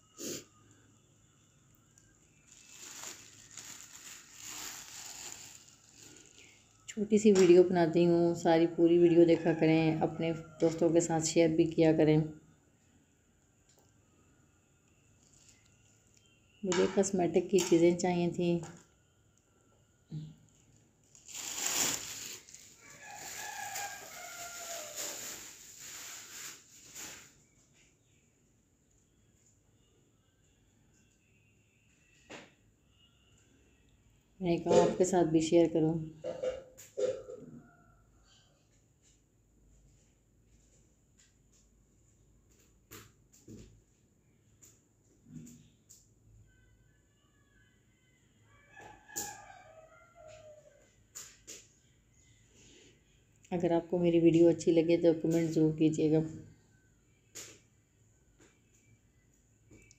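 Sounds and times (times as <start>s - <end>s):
faint rustling: 2.4s - 6.9s, 21.1s - 27.4s.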